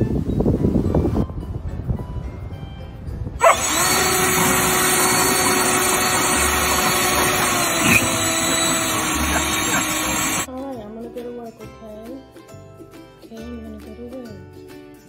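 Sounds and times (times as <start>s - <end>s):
leaf blower running: 3.4s - 10.5s.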